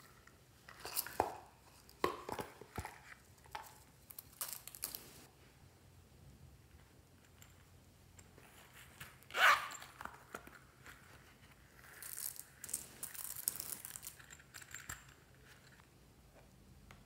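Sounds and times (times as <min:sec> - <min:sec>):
zipper pulled open: 0:09.3 - 0:10.1.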